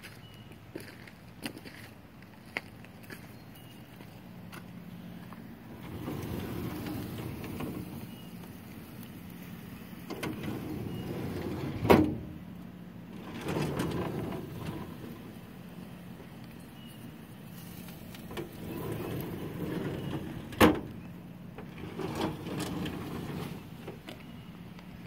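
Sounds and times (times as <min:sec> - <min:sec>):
metal drawers sliding open: 0:05.6 - 0:08.3, 0:10.0 - 0:12.5, 0:13.1 - 0:15.5, 0:18.0 - 0:24.3.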